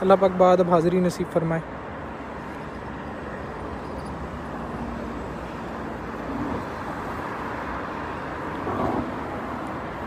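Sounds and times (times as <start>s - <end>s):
traffic hum inside car: 0.0s - 10.0s.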